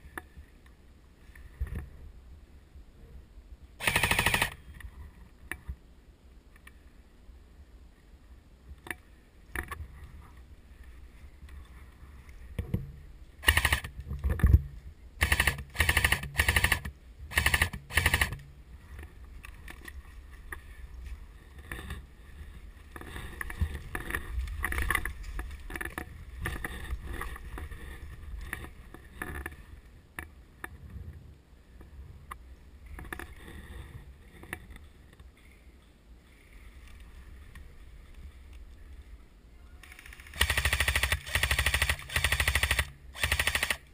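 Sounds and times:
airsoft guns firing bursts: 3.8s - 4.6s, 13.4s - 14.0s, 15.2s - 18.4s, 40.3s - 43.9s
rustling through dry brush: 9.1s - 30.5s, 31.8s - 43.9s.

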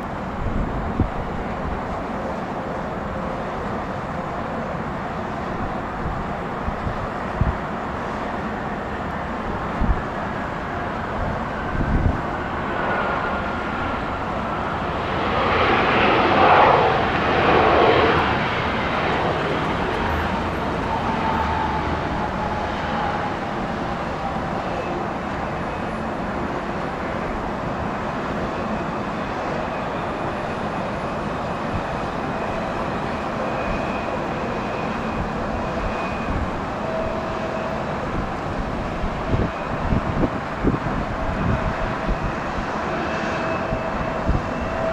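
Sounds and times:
jet engine whine falling in pitch: 0.0s - 44.9s
jet engines roaring: 0.0s - 44.9s.

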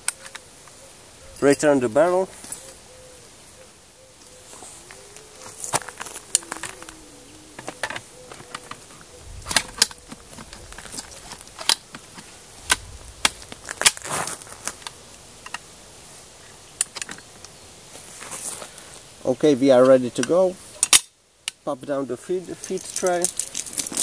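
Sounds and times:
machine gun parts clicking: 7.6s - 14.0s, 22.6s - 24.0s.

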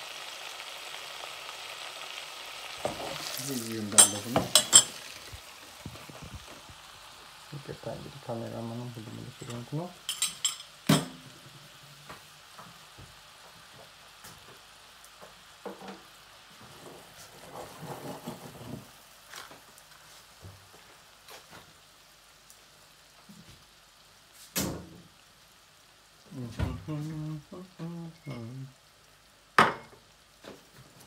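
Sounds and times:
small crackles: 0.0s - 7.6s, 12.0s - 24.6s
butter sizzling in a pot: 0.0s - 31.0s.

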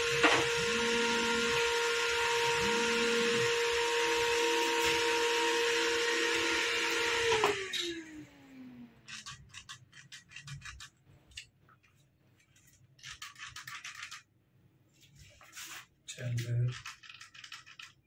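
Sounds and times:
scraping and rubbing: 9.1s - 14.2s, 14.9s - 18.0s.

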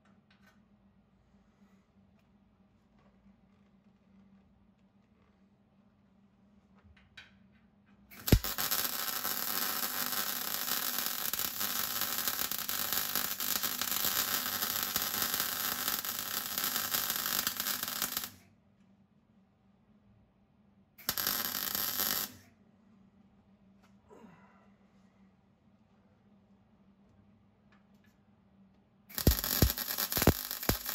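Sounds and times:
welder arc welding: 8.2s - 18.4s, 21.0s - 22.4s, 29.1s - 30.9s
welding arc striking click: 8.2s - 18.4s, 21.0s - 22.4s, 29.1s - 30.9s.

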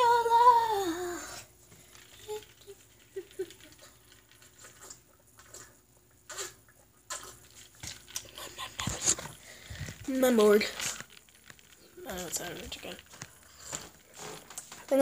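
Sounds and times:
faint handling noises: 7.2s - 15.0s.

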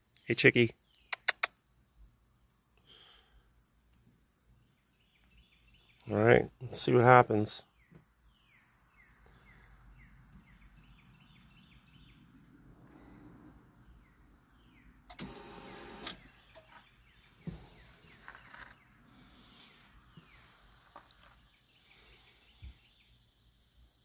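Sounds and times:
sharp click: 0.9s - 1.6s
small electric motor whirring: 15.1s - 16.2s.

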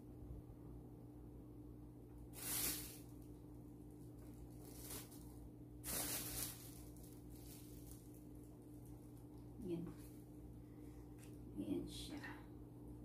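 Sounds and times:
plastic wrapping crinkling: 2.4s - 3.3s, 3.9s - 9.4s.

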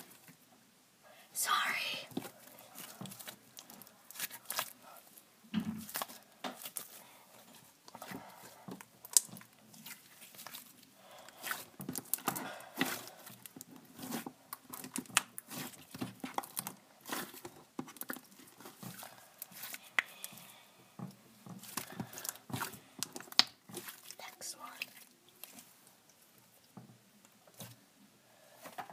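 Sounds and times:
fingers squishing slime: 2.1s - 5.2s, 5.8s - 25.7s.

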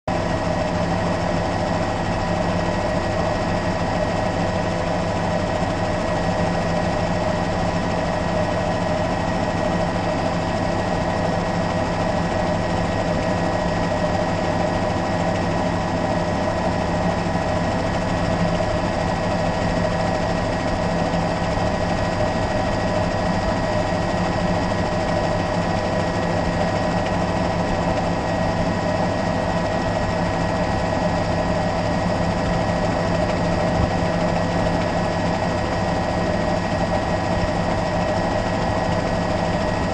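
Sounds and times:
helicopter engine and rotor drone: 0.1s - 39.9s.

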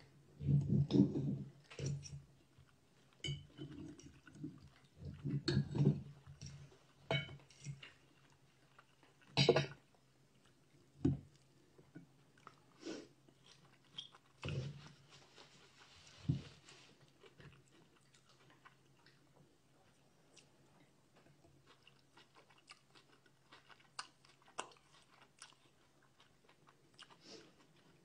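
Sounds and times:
person chewing: 0.5s - 9.4s, 12.3s - 16.2s, 16.9s - 19.3s, 19.9s - 28.0s
cutlery clinking on ceramic plate: 7.1s - 7.4s, 9.4s - 9.8s.

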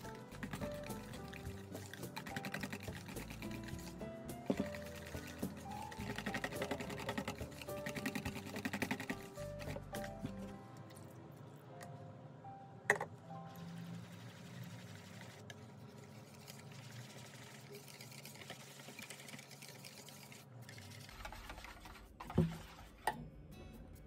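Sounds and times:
background music with held notes: 0.0s - 14.3s, 23.1s - 24.0s
whisk clicking against metal bowl: 0.4s - 3.9s, 4.5s - 10.0s.

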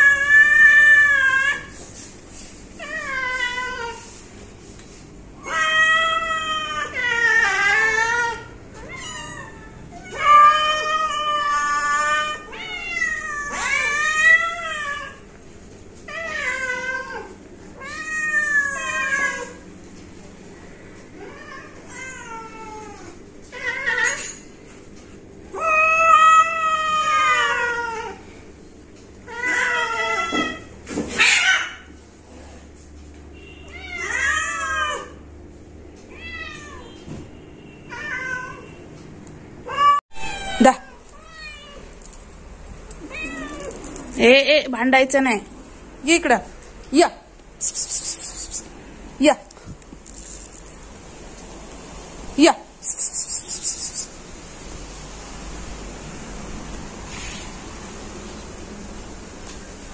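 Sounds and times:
cats meowing: 0.0s - 1.8s, 2.7s - 4.2s, 5.4s - 15.3s, 16.0s - 19.6s, 25.5s - 28.2s, 29.2s - 31.9s, 33.6s - 35.2s, 36.0s - 37.0s, 37.8s - 38.8s, 39.6s - 42.2s, 42.8s - 44.2s.

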